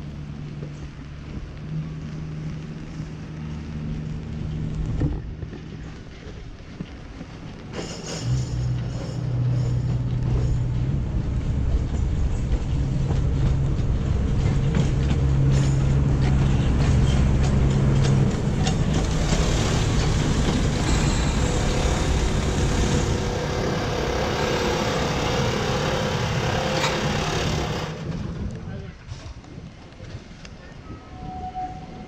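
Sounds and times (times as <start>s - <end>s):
diesel locomotive engine humming: 0.0s - 28.7s
wheels clicking over rails: 4.7s - 28.7s.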